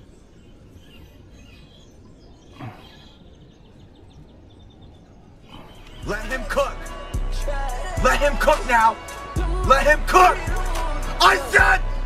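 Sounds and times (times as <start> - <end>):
faint bird chirps: 0.0 - 6.5
outdoor background noise: 0.0 - 12.0.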